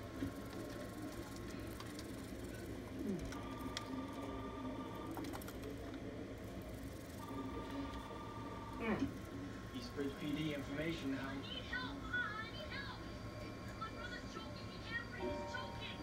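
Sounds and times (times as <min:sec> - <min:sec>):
steady low hum: 0:00.0 - 0:16.0
telephone ringing: 0:03.3 - 0:05.6, 0:07.1 - 0:09.2, 0:15.0 - 0:16.0.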